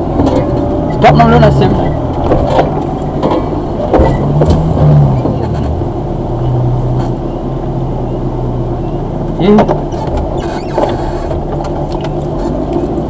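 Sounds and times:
car engine running at low speed: 0.0s - 13.0s
knocks from car body and suspension: 2.1s - 5.8s.

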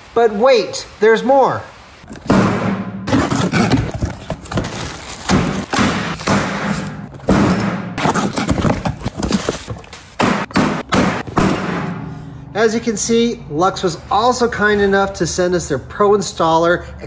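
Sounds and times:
box and tools thumping: 2.1s - 12.0s.

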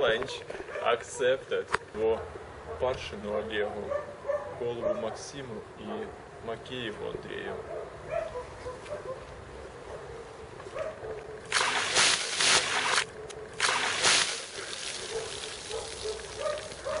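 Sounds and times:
water splashing onto grass: 11.5s - 17.0s.

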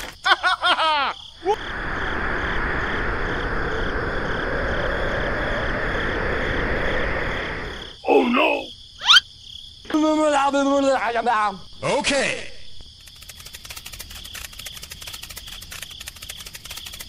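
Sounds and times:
rushing wind sound effect: 1.6s - 8.0s
falling-pitch cartoon chirps: 9.0s - 9.3s.

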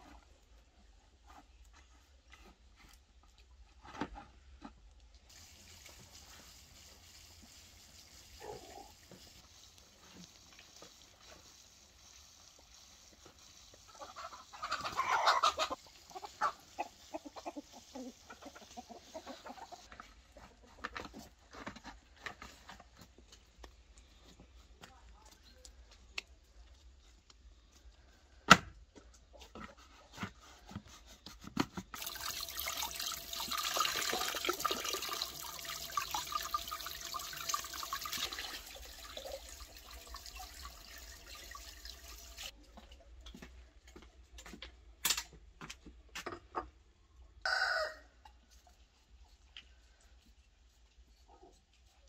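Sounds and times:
water pouring into basin: 5.3s - 13.7s, 32.0s - 42.5s
chicken calling: 13.9s - 19.8s.

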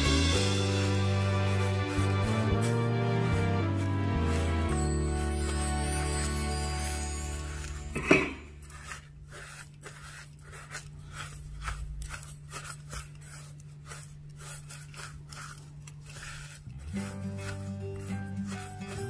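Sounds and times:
spatula scraping sugar in bowl: 0.0s - 19.0s.

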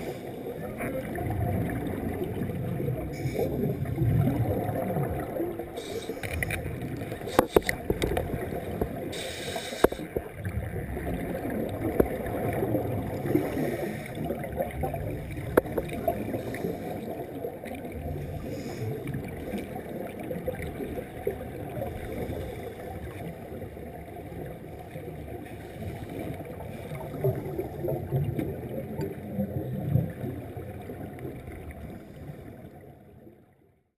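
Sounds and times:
scuba bubbles gurgling underwater: 0.0s - 33.6s
brief hiss: 5.8s - 6.5s, 9.2s - 10.1s
sharp clicks: 9.3s - 10.1s.

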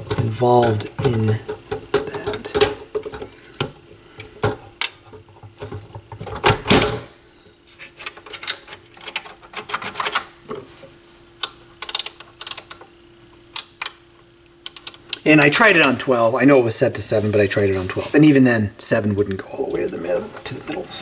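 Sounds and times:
faint steady hum: 0.0s - 21.0s
small mechanical clicks: 11.8s - 12.8s.

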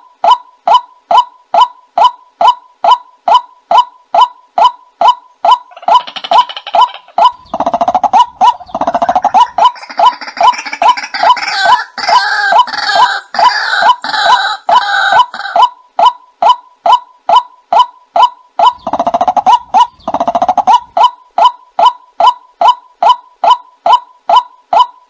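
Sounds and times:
harsh rattling bird calls: 2.4s - 15.7s, 17.3s - 24.8s.

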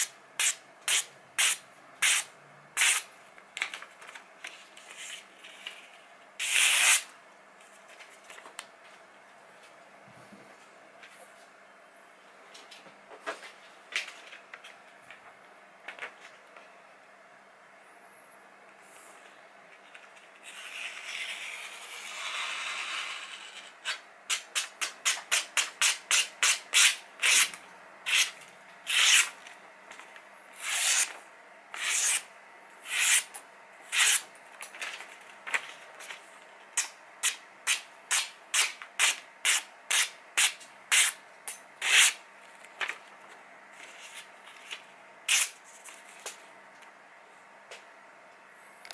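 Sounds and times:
knife slicing paper: 0.4s - 3.1s, 6.4s - 7.1s, 25.3s - 29.4s, 30.6s - 31.2s, 31.8s - 32.2s, 32.9s - 33.3s, 33.9s - 34.3s
paper rustling: 34.6s - 36.3s.

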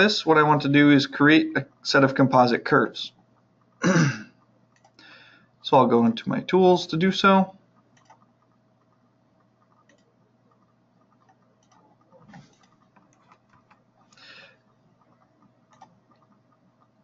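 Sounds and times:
computer mouse clicks: 4.4s - 5.0s, 7.8s - 17.0s.

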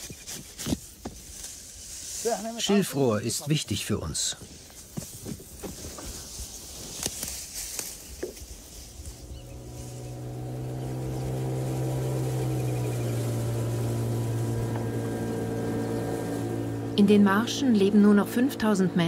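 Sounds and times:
reed stalks crackling and snapping: 4.7s - 16.6s
steady engine hum: 7.8s - 19.0s.

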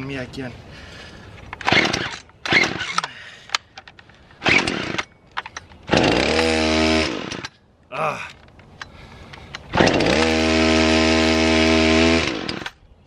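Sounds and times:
recoil starter rips: 1.6s - 7.6s, 9.3s - 12.8s
chainsaw engine running: 4.4s - 5.0s, 5.9s - 7.5s, 9.7s - 12.7s.

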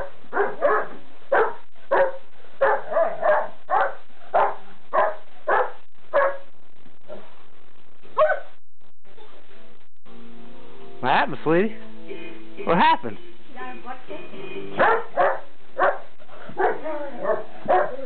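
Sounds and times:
dogs barking: 0.0s - 6.5s, 8.2s - 8.6s, 14.8s - 18.0s.

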